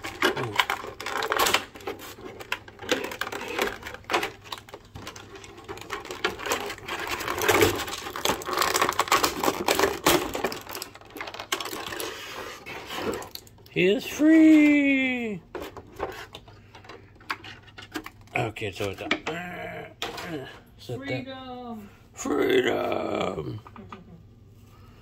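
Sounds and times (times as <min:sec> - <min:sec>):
plastic packaging crackling: 0:00.0 - 0:18.4.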